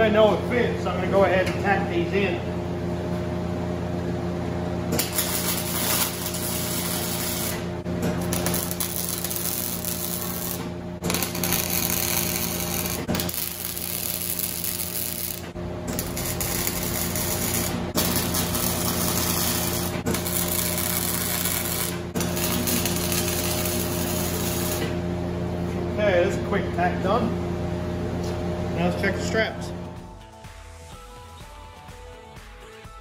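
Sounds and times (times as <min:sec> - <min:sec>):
welding arc crackling and buzzing: 0:04.9 - 0:25.2.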